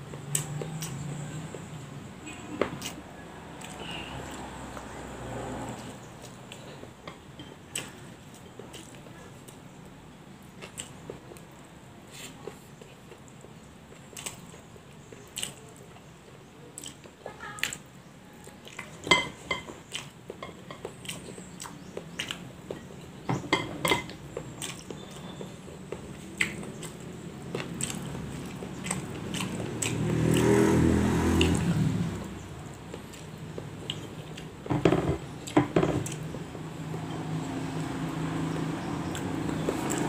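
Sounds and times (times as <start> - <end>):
chewing: 0.1 - 40.0
food and fingers tapping plates: 18.6 - 30.6, 31.3 - 40.0.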